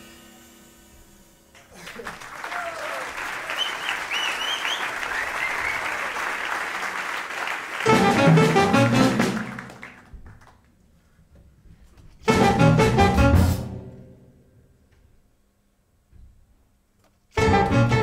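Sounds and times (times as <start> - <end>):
audience applause: 1.6 - 10.6
whistles from audience: 1.8 - 6.9
jazz quartet music burst: 7.8 - 9.9, 12.2 - 14.3, 17.3 - 18.0.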